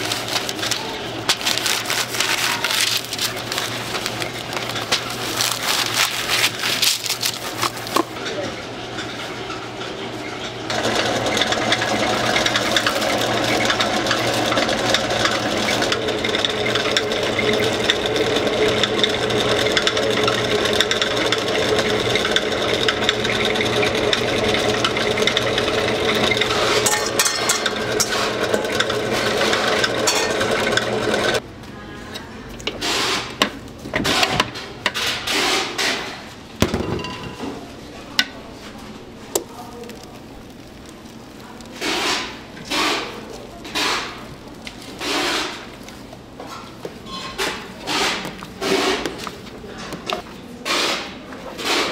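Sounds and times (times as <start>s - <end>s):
stand mixer whining: 10.5s - 31.4s.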